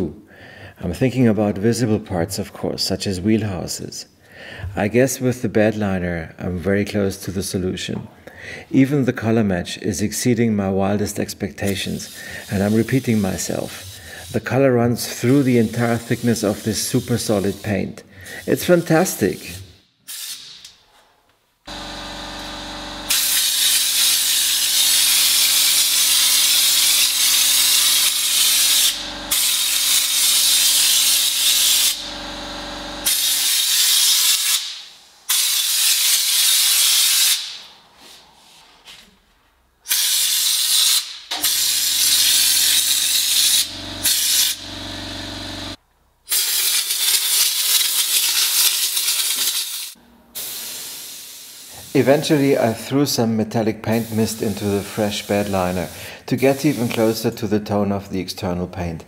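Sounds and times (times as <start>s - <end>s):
spray gun hissing: 12.0s - 14.5s, 15.1s - 17.8s, 18.4s - 20.6s, 21.7s - 38.2s, 39.9s - 52.9s, 53.8s - 57.2s.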